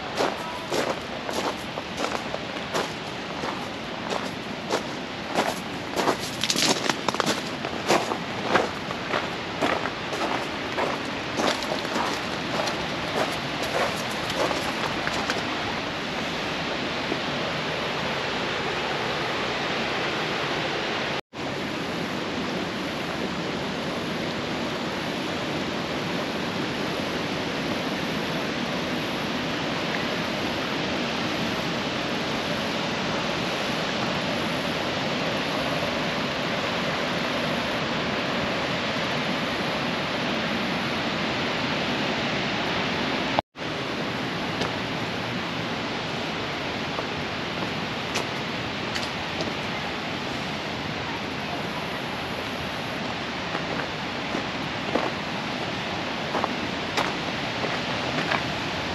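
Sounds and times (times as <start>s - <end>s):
creek rushing over rocks: 0.0s - 21.2s, 35.5s - 58.9s.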